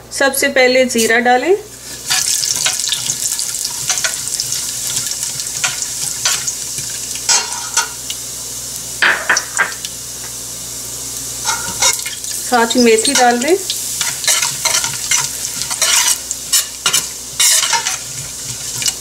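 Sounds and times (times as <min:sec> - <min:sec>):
seeds sizzling in hot oil: 0:01.7 - 0:19.0
metal spoon scraping a pot: 0:14.0 - 0:19.0.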